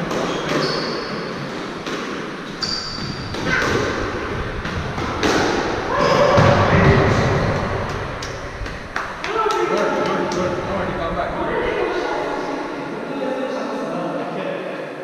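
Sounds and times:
sneakers squeaking on wooden floor: 0:00.0 - 0:05.2
squash ball smacks: 0:04.9 - 0:05.8.

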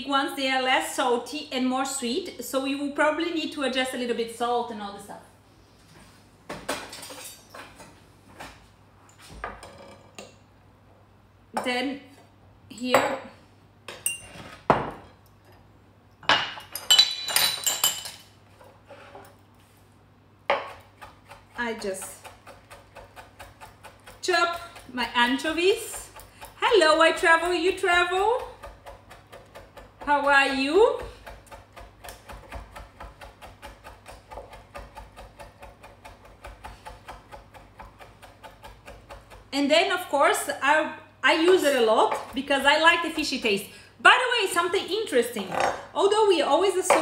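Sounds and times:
knife chopping on wooden board: 0:20.5 - 0:24.9, 0:28.4 - 0:39.5.

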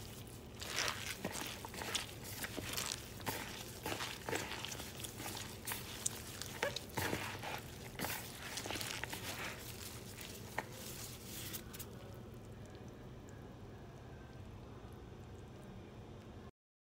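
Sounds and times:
crisp rustles and crunches of salad: 0:00.0 - 0:12.4.

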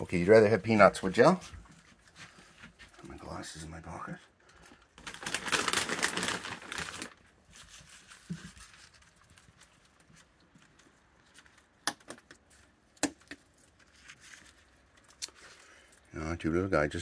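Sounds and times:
clothing rustling: 0:05.0 - 0:11.8, 0:12.4 - 0:16.1.

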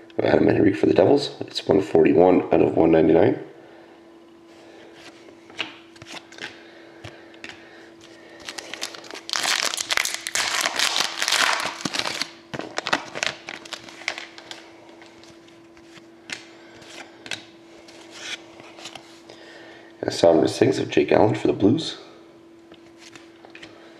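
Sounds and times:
cards being handled: 0:05.0 - 0:19.2
card pack wrapper tearing and crinkling: 0:08.4 - 0:15.4.

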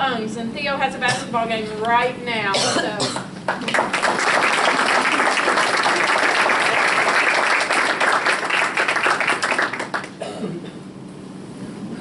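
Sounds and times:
audience applauding: 0:03.5 - 0:10.2.

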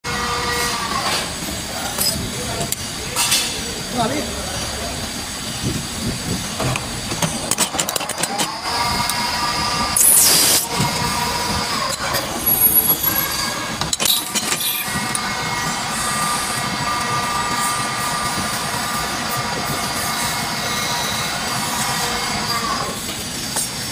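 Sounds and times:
lathe machine whine: 0:00.1 - 0:03.0, 0:03.8 - 0:23.9
loud harsh burst: 0:08.6 - 0:23.0.

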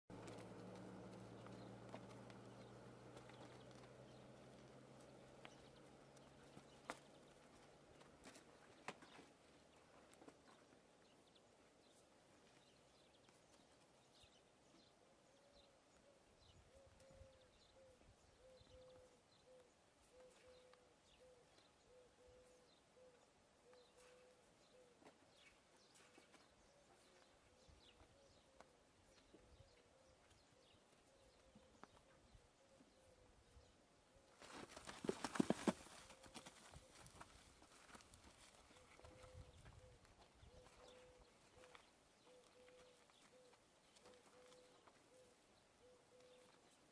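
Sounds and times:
clicks and rustles in dry grass: 0:00.1 - 0:14.3, 0:34.3 - 0:46.9
horses feeding on hay: 0:00.1 - 0:14.3, 0:34.4 - 0:46.9.

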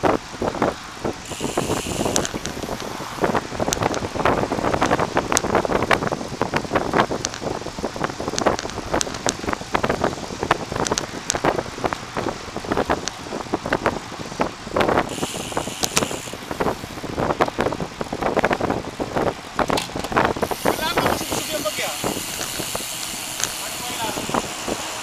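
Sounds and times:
wind rushing over microphone: 0:00.0 - 0:25.0
bike knocks and rattles: 0:14.8 - 0:17.3, 0:19.5 - 0:24.7.

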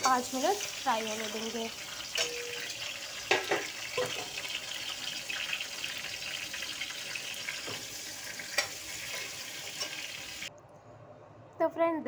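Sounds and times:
vegetables sizzling in oil: 0:00.0 - 0:10.5.

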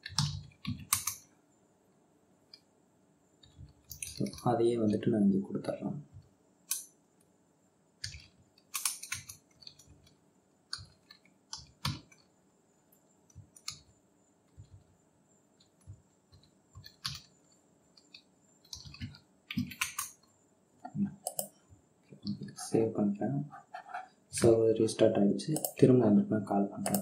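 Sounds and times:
computer keyboard keys clicking: 0:00.0 - 0:01.2, 0:08.0 - 0:12.3, 0:15.6 - 0:17.3, 0:18.0 - 0:20.2.

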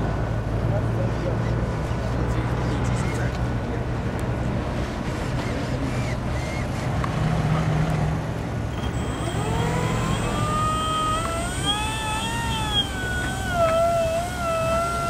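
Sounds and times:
electric motor and propeller whine: 0:08.6 - 0:15.0
thin high electronic whine: 0:08.7 - 0:15.0.

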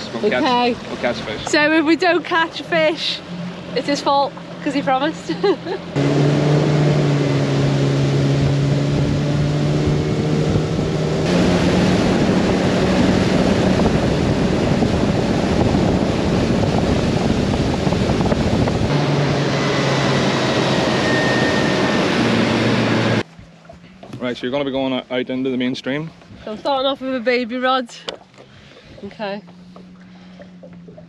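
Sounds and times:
motorboat engine running: 0:00.0 - 0:31.0
water rushing: 0:00.0 - 0:31.0
wind rushing: 0:06.0 - 0:23.2.

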